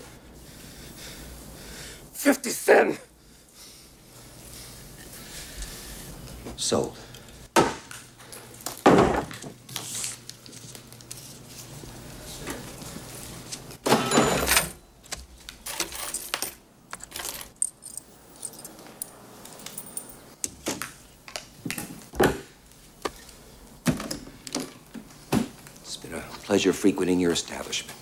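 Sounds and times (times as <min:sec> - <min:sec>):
coins clinking and knocking: 0:15.6 - 0:20.2.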